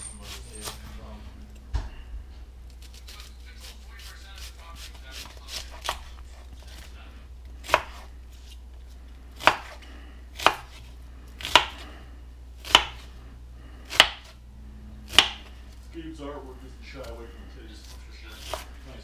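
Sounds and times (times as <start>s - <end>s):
knife chopping on cutting board: 4.3s - 6.2s, 7.6s - 8.6s, 9.4s - 9.8s, 10.4s - 11.8s, 12.6s - 13.1s, 13.9s - 14.4s, 15.1s - 15.5s, 17.8s - 18.8s.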